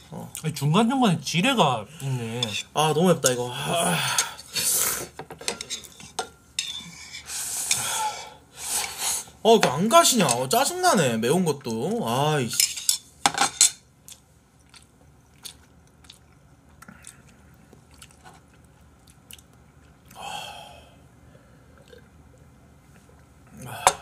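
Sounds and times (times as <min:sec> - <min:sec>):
people sipping and swallowing: 0:21.7 - 0:24.0.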